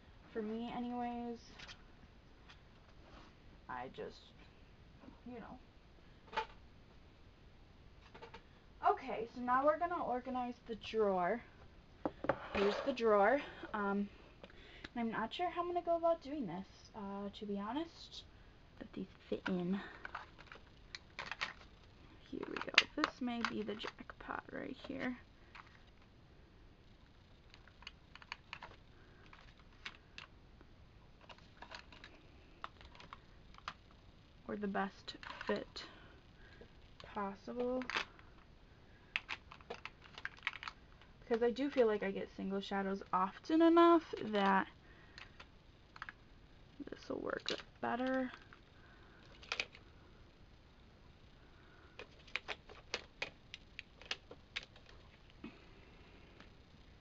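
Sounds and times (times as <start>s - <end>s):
plastic compacts clicking: 39.1s - 41.8s, 52.0s - 55.0s.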